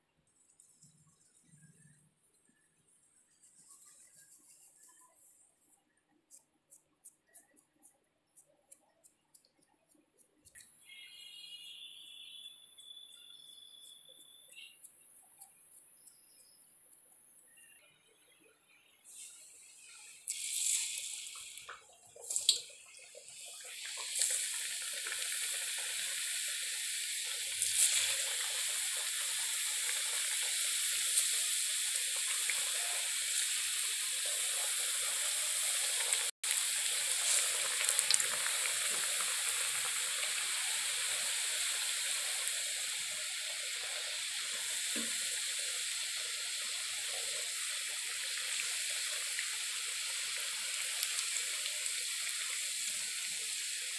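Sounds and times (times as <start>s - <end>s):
food sizzling in hot oil: 19.1s - 53.9s.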